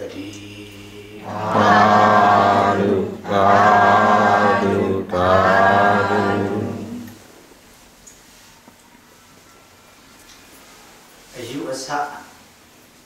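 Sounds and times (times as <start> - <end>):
voices chanting in unison: 0.4 - 7.2.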